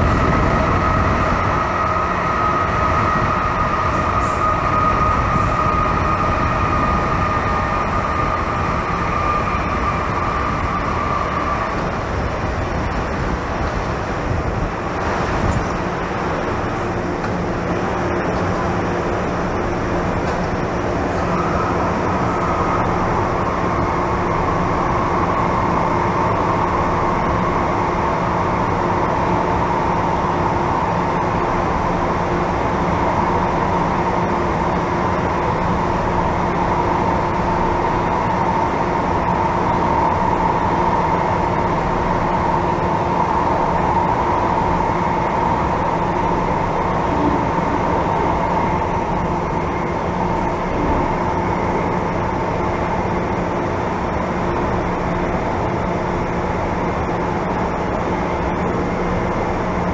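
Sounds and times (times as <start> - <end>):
howling whine: 0.0 - 59.9
train wheels rumbling on rail: 0.0 - 59.9.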